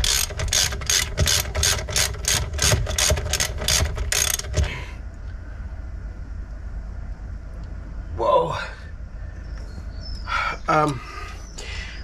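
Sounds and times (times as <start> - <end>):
ratchet wrench clicking: 0.0 - 4.7.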